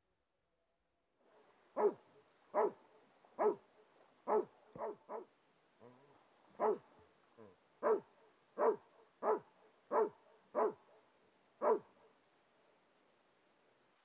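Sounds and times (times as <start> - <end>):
dog barking: 1.8 - 3.6, 4.2 - 5.3, 6.6 - 7.1, 7.8 - 11.0, 11.6 - 12.0.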